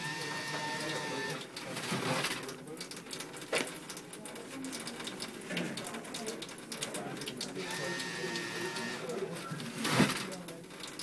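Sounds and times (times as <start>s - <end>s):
paper towel dispenser whine: 0.0s - 2.4s, 7.6s - 10.2s.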